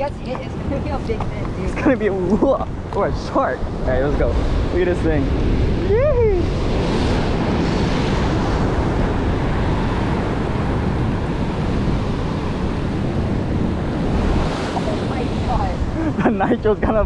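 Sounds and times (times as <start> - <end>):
wind buffeting microphone: 0.0 - 17.0
surf breaking on rocks: 6.5 - 16.0.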